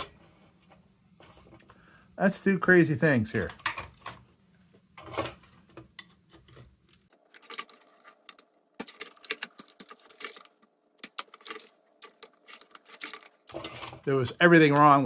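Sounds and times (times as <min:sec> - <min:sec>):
small metal parts clicking: 0:06.9 - 0:14.1.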